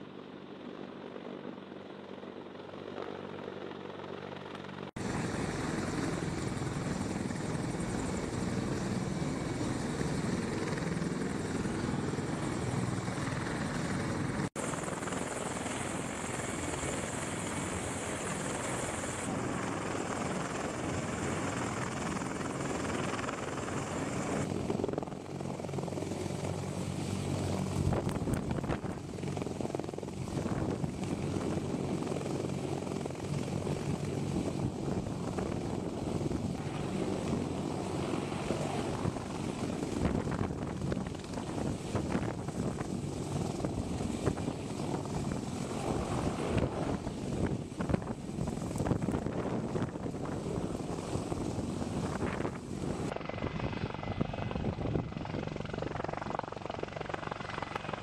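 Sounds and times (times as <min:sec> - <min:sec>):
helicopter hovering overhead: 0:00.0 - 0:58.0.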